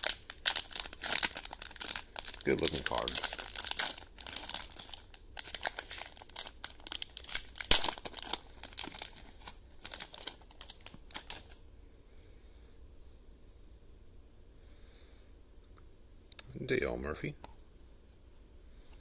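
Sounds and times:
wrapper crinkling and tearing: 0.0s - 11.6s.

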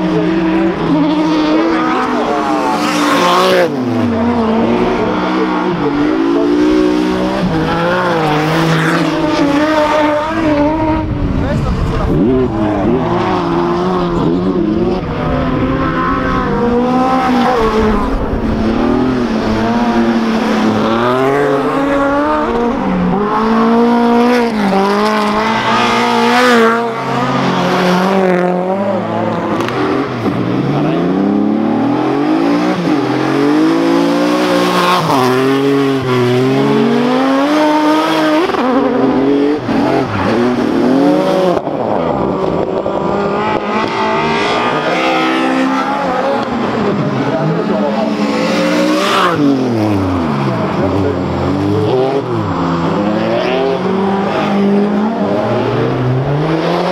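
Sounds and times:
rally car engines revving: 0.0s - 56.9s.

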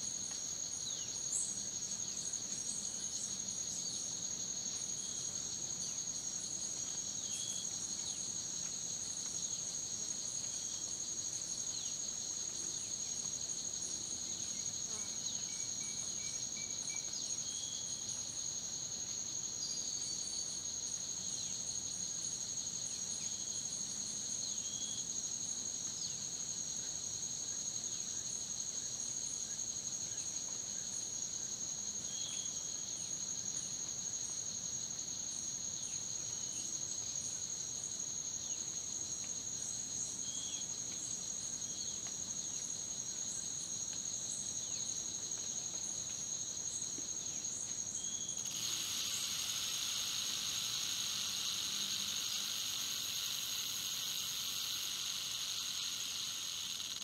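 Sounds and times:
insects trilling: 0.0s - 57.0s
short insect chirp: 46.6s - 57.0s.

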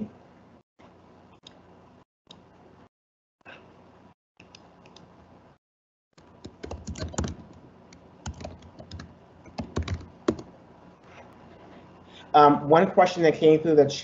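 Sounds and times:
computer keyboard typing: 6.2s - 10.5s.

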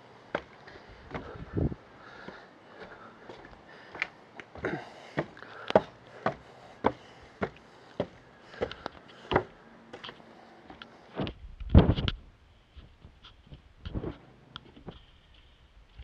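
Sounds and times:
footsteps on wooden stairs: 0.3s - 10.8s.

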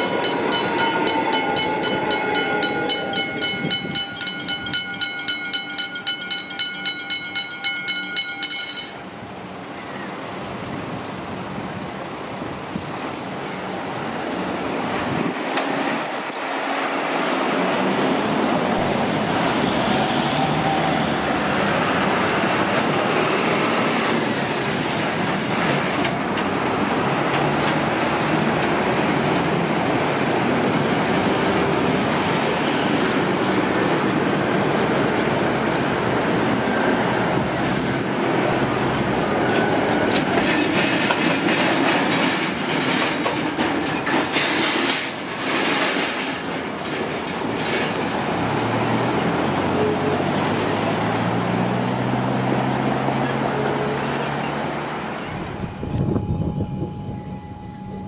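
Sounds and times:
train wheels rumbling on track: 0.0s - 57.1s
wheels clicking over rail joints: 22.0s - 30.8s, 38.9s - 51.1s.

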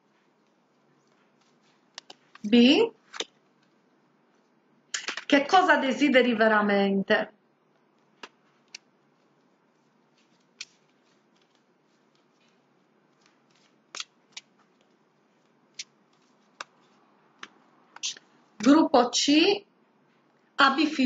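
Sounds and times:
cards clicking and snapping: 5.0s - 5.3s, 10.3s - 12.3s, 13.2s - 14.9s.

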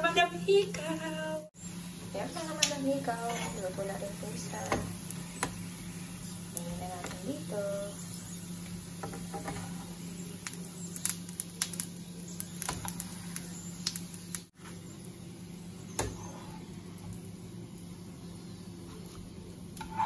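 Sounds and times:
steady low hum: 0.0s - 20.0s
metal tongs clicking on a pan: 2.6s - 2.8s.

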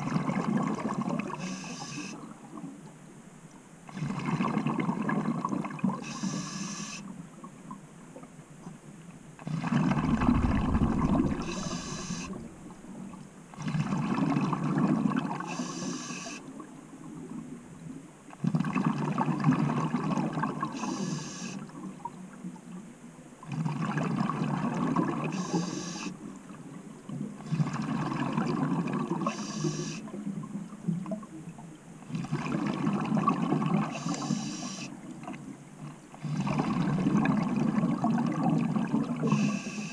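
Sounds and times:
exhaled bubbles gurgling: 0.0s - 2.7s, 3.9s - 6.9s, 9.4s - 17.6s, 18.4s - 22.8s, 23.4s - 39.9s
regulator hiss: 1.4s - 2.2s, 6.0s - 7.0s, 10.0s - 12.6s, 15.5s - 16.4s, 20.8s - 21.6s, 25.3s - 26.1s, 29.3s - 30.0s, 33.9s - 34.9s, 39.3s - 39.9s.

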